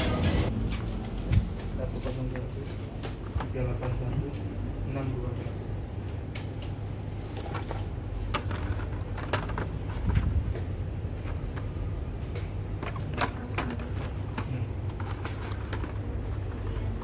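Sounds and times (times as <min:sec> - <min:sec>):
handling clicks and rustles: 0:06.4 - 0:17.0.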